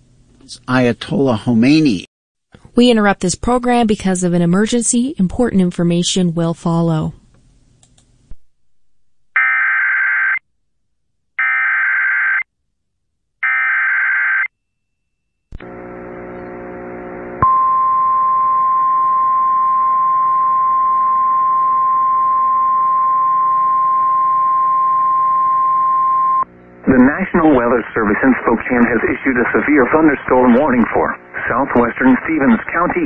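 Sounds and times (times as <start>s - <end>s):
steady attention tone: 15.6s - 33.0s.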